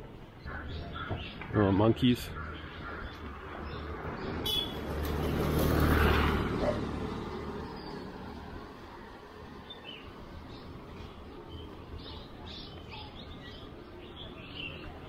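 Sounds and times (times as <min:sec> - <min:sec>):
motor vehicle passing by: 0:02.5 - 0:12.1.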